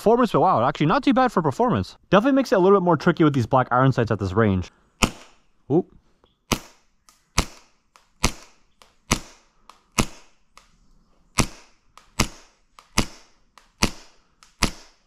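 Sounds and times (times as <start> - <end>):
airsoft pistol shots: 5.0 - 5.5, 6.5 - 10.4, 11.4 - 15.0.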